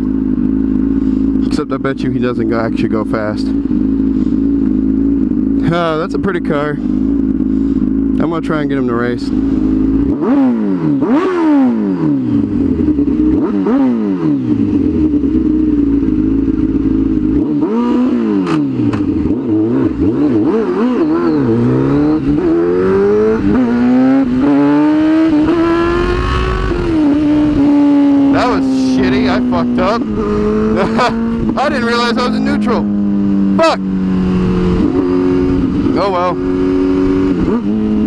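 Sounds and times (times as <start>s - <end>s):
motorcycle accelerating through gears: 0.0s - 38.0s
motorcycle engine revving: 0.0s - 38.0s.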